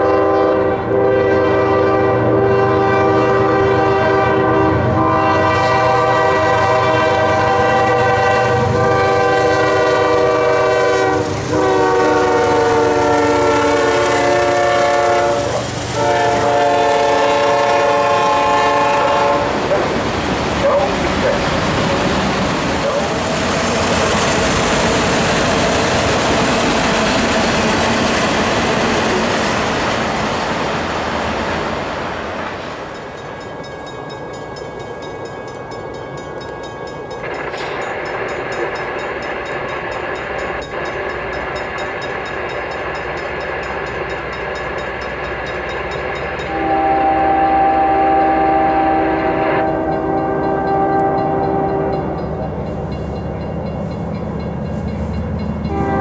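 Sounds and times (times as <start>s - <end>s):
locomotive horn: 0.0s - 19.8s, 46.4s - 52.3s, 55.0s - 56.0s
approaching train rumble: 0.0s - 56.0s
freight train rumbling and rattling: 0.0s - 56.0s.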